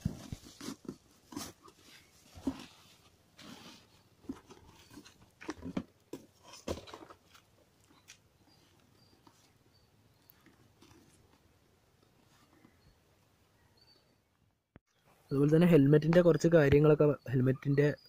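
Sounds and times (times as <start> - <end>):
rustling and crinkling packaging: 0.0 - 9.5.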